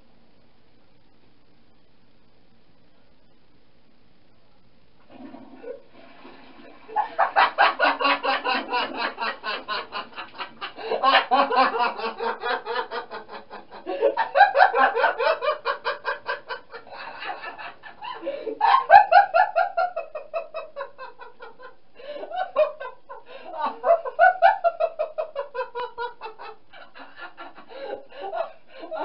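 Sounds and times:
young man laughing loudly: 6.9 - 29.0.

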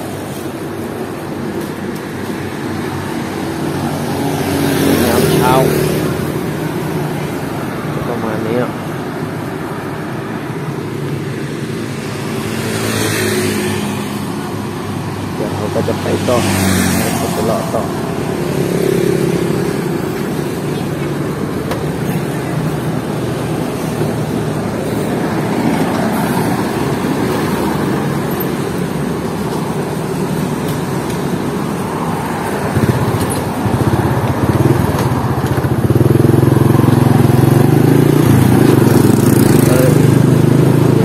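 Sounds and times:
road and traffic noise: 0.0 - 41.0
motorcycle engine running: 32.1 - 41.0.

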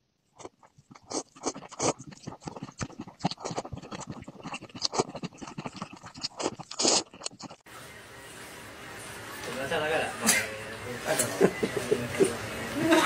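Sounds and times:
noodles slurped: 0.4 - 7.6.

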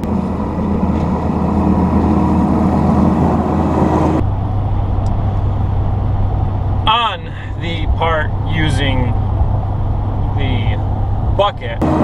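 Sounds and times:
track loader engine running: 0.0 - 12.0
truck drone from inside cab: 0.0 - 12.0.

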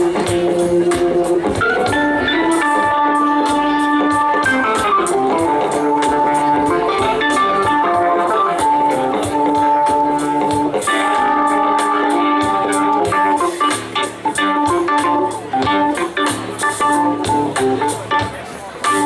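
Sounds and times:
electric guitar: 0.0 - 19.0
live band playing: 0.0 - 19.0.

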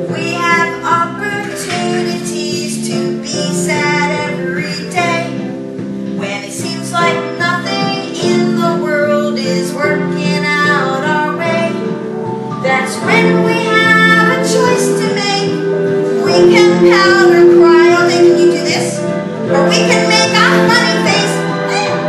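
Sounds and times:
woman singing: 0.0 - 5.5, 6.2 - 11.9, 12.6 - 22.0
guitar accompaniment: 0.0 - 22.0.

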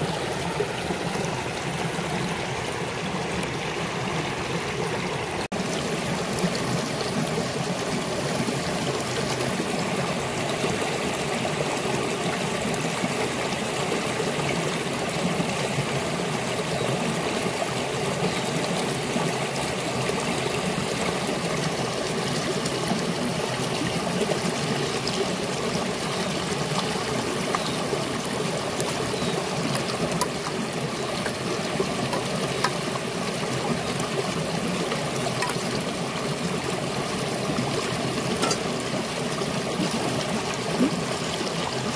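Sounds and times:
river flowing over rocks: 0.0 - 41.9.

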